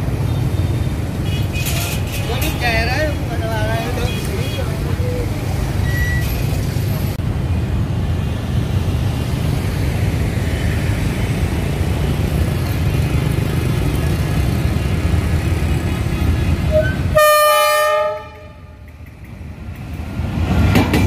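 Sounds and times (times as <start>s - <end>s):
traffic engines rumbling: 0.0s - 21.0s
short high beep: 5.8s - 6.4s.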